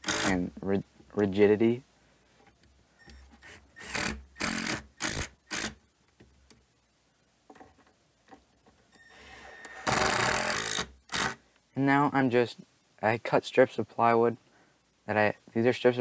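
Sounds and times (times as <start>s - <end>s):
impact driver driving screws: 0.0s - 0.4s, 3.1s - 5.8s, 9.6s - 11.4s.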